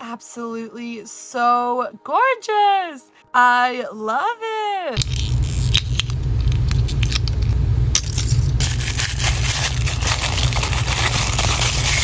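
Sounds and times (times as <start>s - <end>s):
plastic wrapper crackling: 5.0s - 12.0s
steady low hum: 5.0s - 12.0s.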